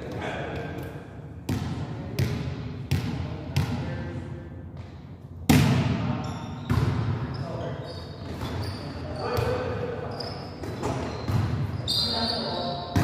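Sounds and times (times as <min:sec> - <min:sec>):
volleyball bouncing on gym floor: 0:00.0 - 0:04.0, 0:04.8 - 0:07.4, 0:10.6 - 0:12.2
volleyball struck by hand: 0:05.5 - 0:06.1.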